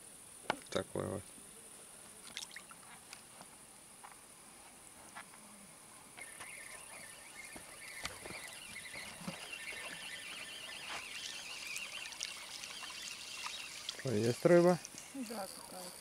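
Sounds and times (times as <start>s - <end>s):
crickets chirping: 0.0s - 16.0s
warbling trilling call: 6.2s - 16.0s.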